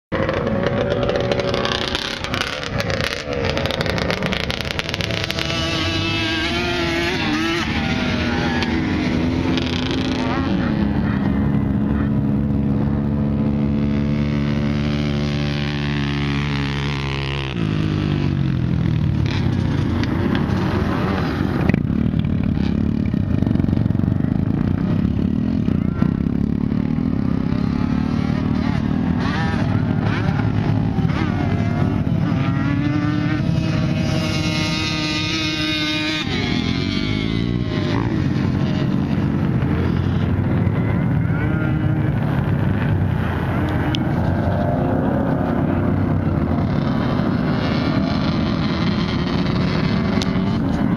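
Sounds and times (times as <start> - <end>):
quad engines revving: 0.1 - 50.9.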